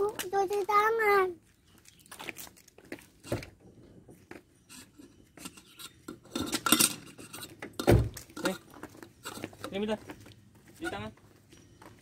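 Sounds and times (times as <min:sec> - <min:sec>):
metal kettle clinking and rattling: 0:05.4 - 0:09.8.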